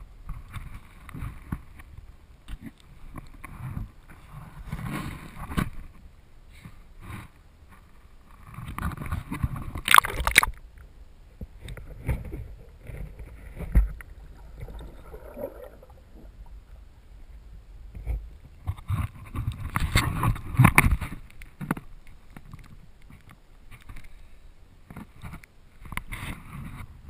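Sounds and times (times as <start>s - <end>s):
muffled swimming splashes: 11.6s - 17.4s.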